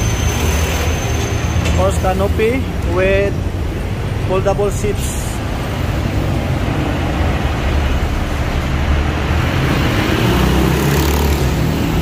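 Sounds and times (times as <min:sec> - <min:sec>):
road traffic rumble: 0:00.0 - 0:12.0
loud vehicle engine passing: 0:05.8 - 0:12.0.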